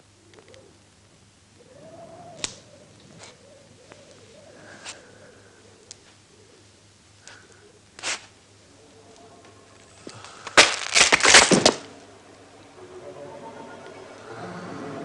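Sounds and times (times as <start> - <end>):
loud cracking crashing impacts: 10.4 - 12.0.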